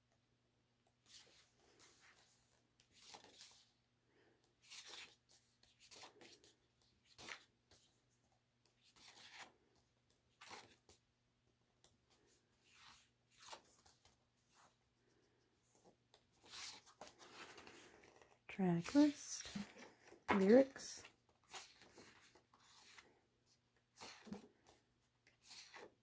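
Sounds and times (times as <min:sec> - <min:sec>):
paper pages turning: 0:01.0 - 0:03.7, 0:04.6 - 0:08.0, 0:08.7 - 0:11.0, 0:12.1 - 0:14.7, 0:15.7 - 0:23.1, 0:23.8 - 0:26.0.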